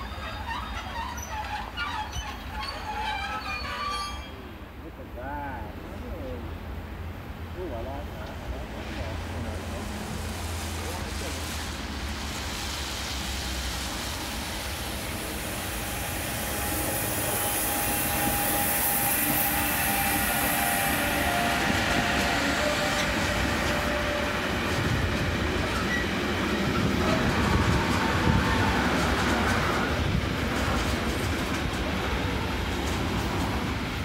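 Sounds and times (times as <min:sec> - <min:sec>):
electric locomotives passing: 0:00.0 - 0:34.0
high hiss: 0:08.6 - 0:30.3.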